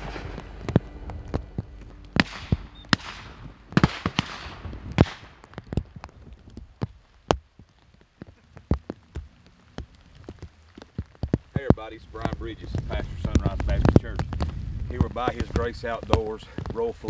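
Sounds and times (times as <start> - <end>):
rain ticking on camera: 0.0 - 17.0
shotgun shots echoing: 2.2 - 5.5.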